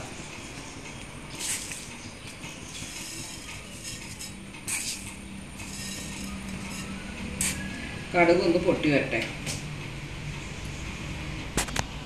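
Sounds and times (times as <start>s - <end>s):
seeds rattling onto metal pan: 2.7s - 7.7s
oil sizzling: 2.7s - 8.1s.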